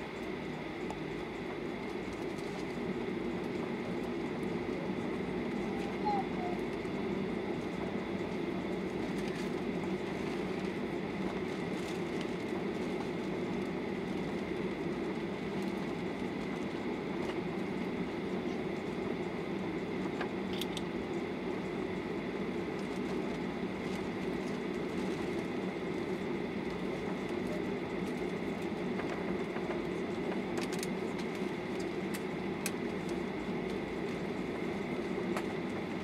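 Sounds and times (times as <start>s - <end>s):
jet engine rumble and whine: 0.0s - 36.0s.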